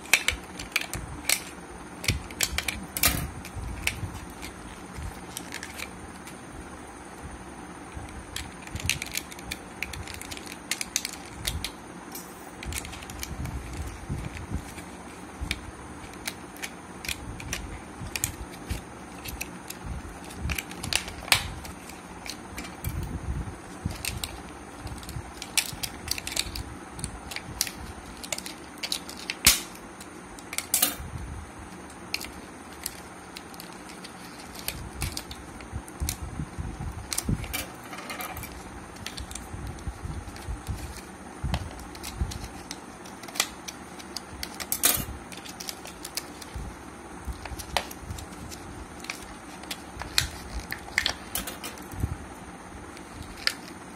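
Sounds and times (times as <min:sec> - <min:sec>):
stiff plastic packaging crackling: 0:38.4 - 0:52.0.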